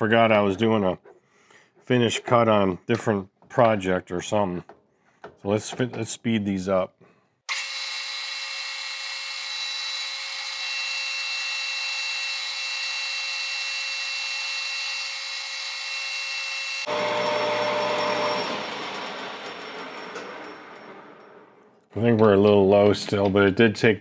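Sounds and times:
metal lathe whine: 7.5 - 21.4.

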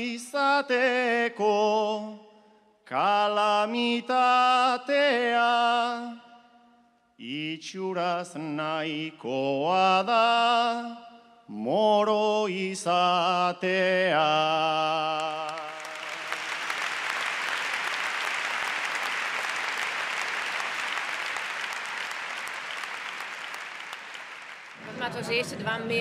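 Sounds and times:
man singing a cappella: 0.0 - 6.4, 7.2 - 15.9
audience applause: 15.2 - 26.0.

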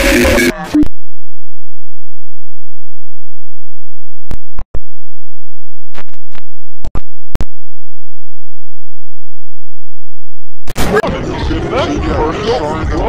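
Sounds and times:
distorted low hum: 0.0 - 12.1
crackling pops: 5.9 - 7.6.

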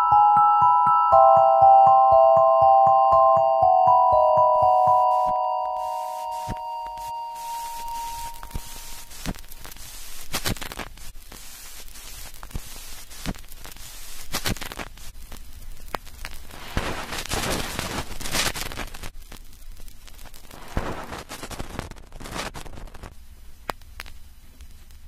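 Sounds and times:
bell-like synth tone: 0.0 - 9.1
crackling static with clicks and pops: 4.6 - 25.0.

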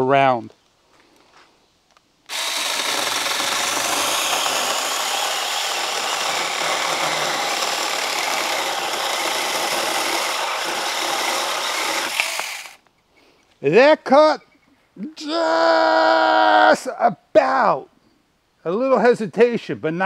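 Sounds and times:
mini chainsaw cutting branch: 2.3 - 12.8.

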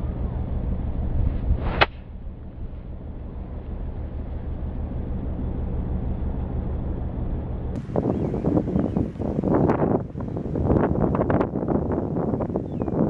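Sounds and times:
wind rumbling on microphone: 0.0 - 13.0
golf club swish and strike: 1.2 - 2.2.

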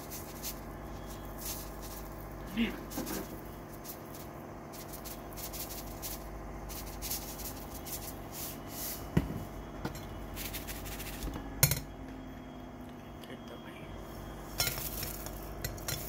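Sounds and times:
salt shaker rustling hisses: 2.8 - 9.1.

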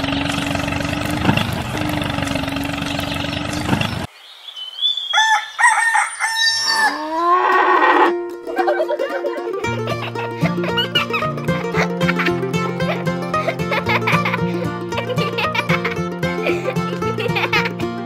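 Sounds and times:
small motor humming and rattling: 0.0 - 4.1, 9.6 - 18.0
rooster crowing: 5.0 - 8.1.

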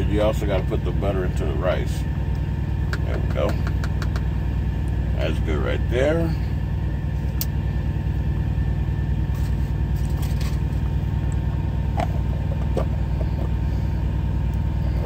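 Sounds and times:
diesel engine idling: 0.0 - 15.0.

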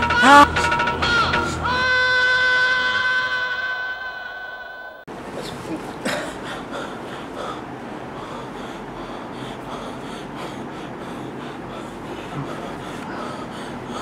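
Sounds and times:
man gasping and wheezing: 0.0 - 0.6, 6.2 - 14.0.

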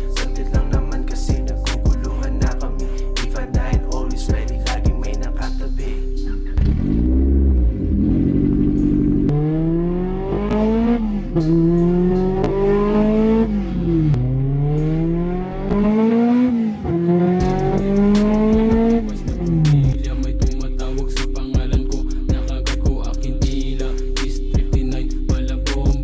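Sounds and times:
car engine revving: 6.5 - 20.3.

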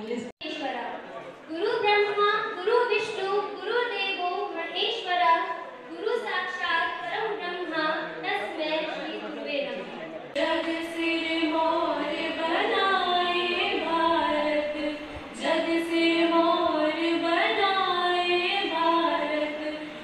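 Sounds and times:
two women singing: 10.4 - 20.0.

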